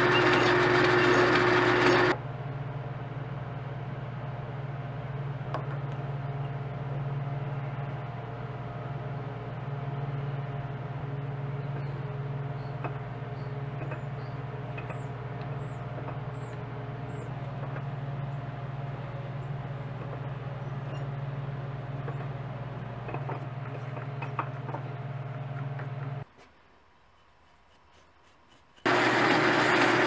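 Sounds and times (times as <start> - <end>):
metal lathe humming: 0.0 - 2.2, 7.4 - 26.2, 27.7 - 30.0.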